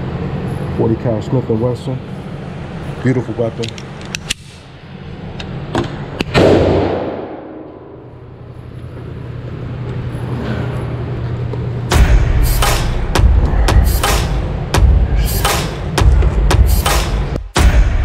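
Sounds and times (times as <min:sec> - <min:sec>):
steady low hum: 0:00.0 - 0:18.0
gunshot: 0:06.3 - 0:07.7.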